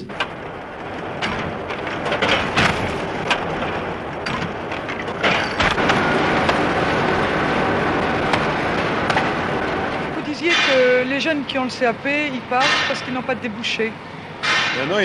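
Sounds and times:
packing machine clattering: 0.0 - 11.9.

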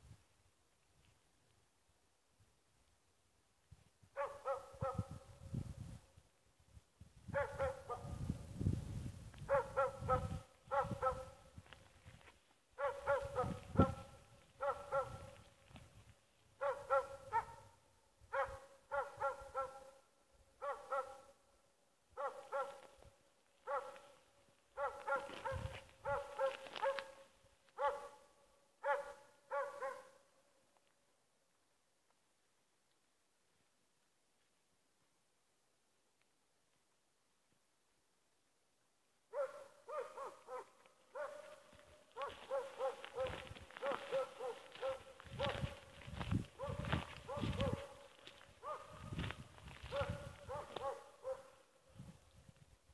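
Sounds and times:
dog barking: 4.2 - 5.4, 7.3 - 8.3, 9.5 - 11.5, 12.8 - 15.4, 16.6 - 21.4, 22.2 - 23.0, 23.6 - 24.2, 24.8 - 30.3, 39.3 - 45.9, 46.6 - 49.2, 49.8 - 51.6.

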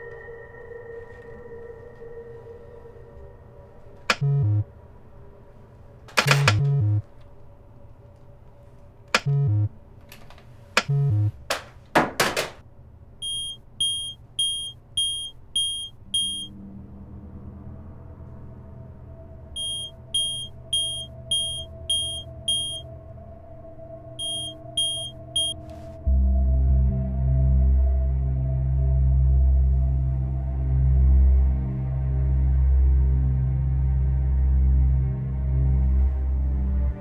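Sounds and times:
low synthesizer drone: 0.0 - 10.0, 10.8 - 11.4, 12.7 - 37.0
high electronic beeping: 13.2 - 16.5, 19.6 - 22.8, 24.2 - 25.6.

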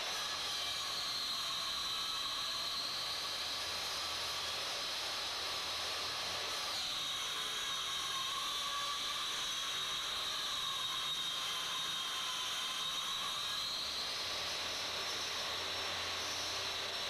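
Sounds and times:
faint high whistling tone: 6.8 - 17.0.

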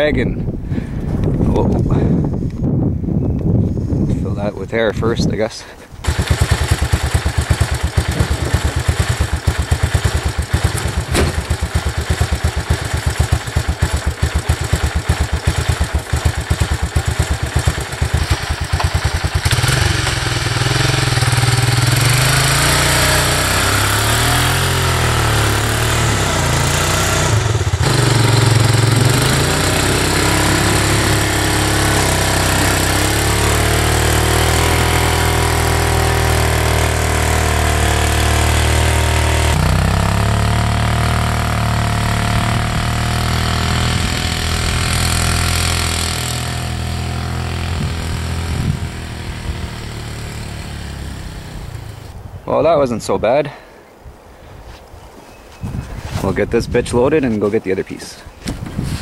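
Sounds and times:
single-cylinder engine running: 6.0 - 52.2.

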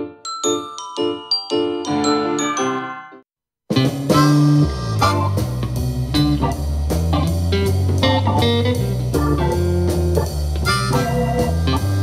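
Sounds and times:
blues guitar instrumental: 3.7 - 12.0
steady bass line: 3.7 - 12.0.

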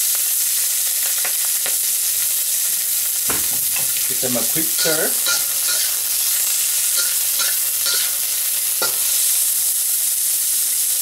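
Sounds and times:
food sizzling in hot oil: 0.0 - 11.0
metal spatula scraping a wok: 3.6 - 9.5.

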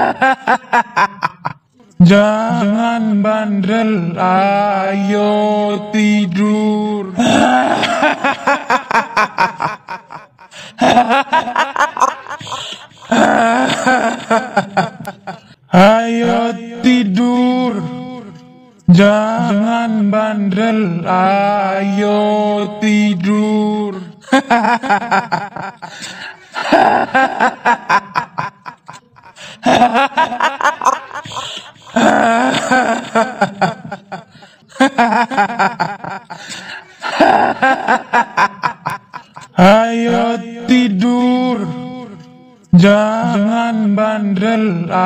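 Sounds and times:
woman cackling laugh: 0.0 - 1.6
woman's cackling laugh: 0.0 - 1.6, 26.6 - 36.4.

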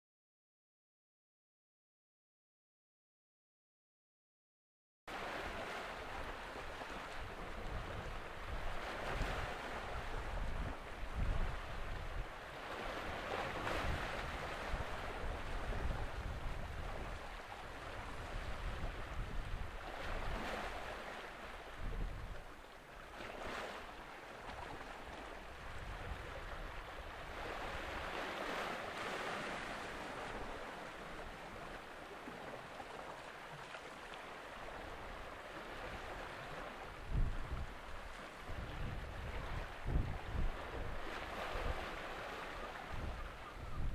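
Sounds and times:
wind rumbling on microphone: 5.2 - 23.8, 24.4 - 33.0, 34.5 - 43.9.

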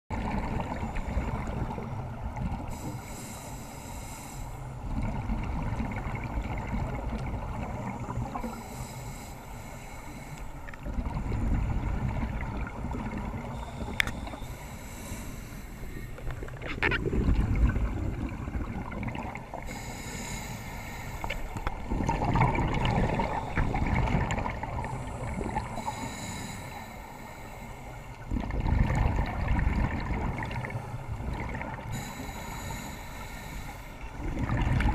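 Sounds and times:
gurgling exhaled bubbles: 0.1 - 2.8, 4.8 - 8.5, 10.8 - 14.0, 16.2 - 19.7, 21.5 - 26.1, 28.2 - 32.2, 34.2 - 34.9
regulator hissing inhale: 2.6 - 4.8, 8.1 - 10.7, 13.5 - 16.4, 19.5 - 21.8, 24.8 - 28.2, 31.9 - 34.2.

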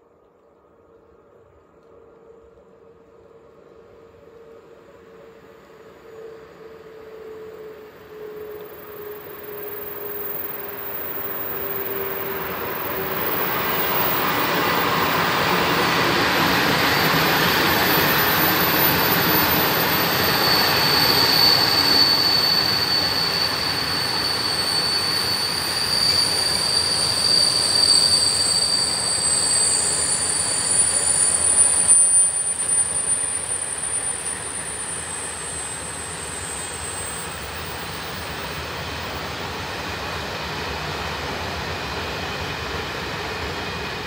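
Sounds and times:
freight train rumbling past: 1.1 - 44.0
high wheel squeal: 6.0 - 39.3.

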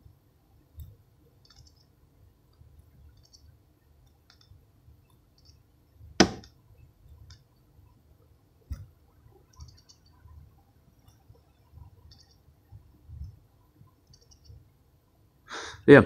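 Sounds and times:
faint light clicking: 2.5 - 5.6
fidget spinner spinning: 8.7 - 14.7.

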